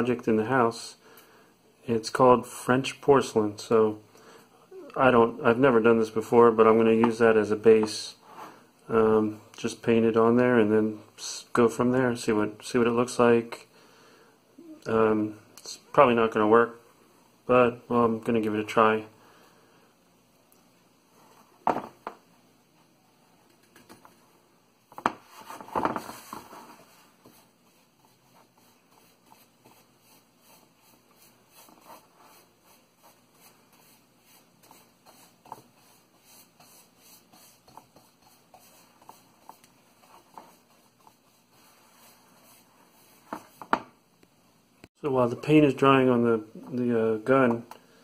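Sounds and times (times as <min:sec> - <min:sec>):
paintbrush strokes on wood: 0:25.2 - 0:43.8.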